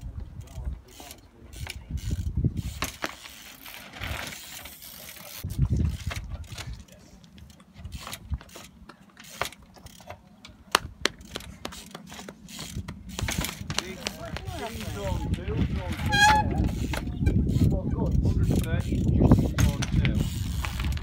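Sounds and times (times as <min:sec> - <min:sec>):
bike knocking on stone: 0:09.3 - 0:15.0, 0:19.5 - 0:21.0.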